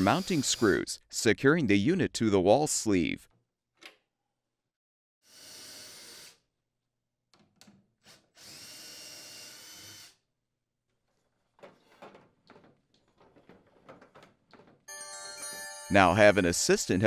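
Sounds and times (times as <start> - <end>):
cordless drill running: 0.0 - 0.8, 5.3 - 6.4, 8.4 - 10.2.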